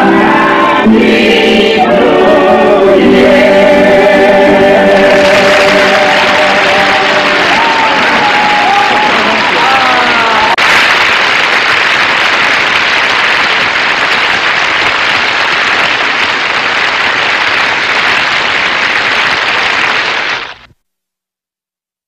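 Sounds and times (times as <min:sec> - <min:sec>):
studio audience applauding: 0:05.0 - 0:20.7.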